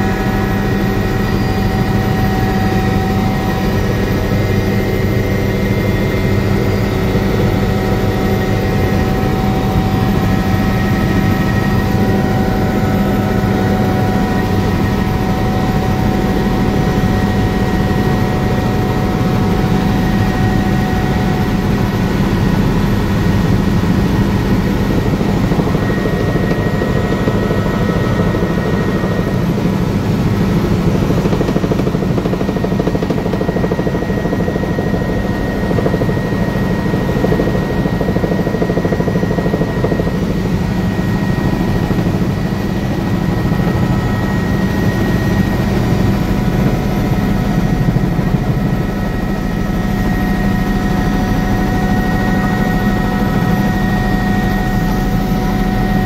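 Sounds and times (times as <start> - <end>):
helicopter rotor and engine drone: 0.0 - 56.0.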